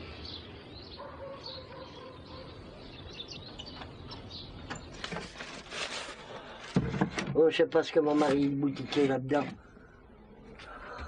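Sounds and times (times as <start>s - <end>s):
small birds chirping: 0.0s - 5.7s
outdoor background hiss: 0.0s - 11.0s
knocks and rustles: 4.6s - 7.4s
faint steady hum: 9.5s - 11.0s.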